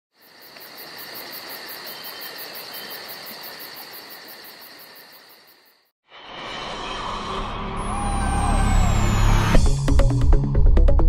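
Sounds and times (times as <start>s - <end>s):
insects chirping: 0.1s - 5.9s.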